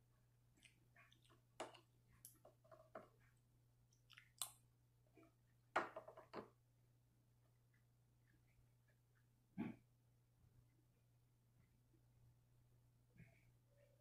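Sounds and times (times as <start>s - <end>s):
chewing cereal: 0.4s - 5.4s.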